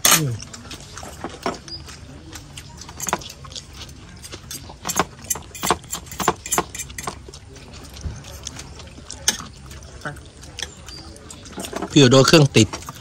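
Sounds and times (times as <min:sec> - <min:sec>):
cutlery clinking on plates: 0:02.4 - 0:03.6, 0:04.2 - 0:07.2.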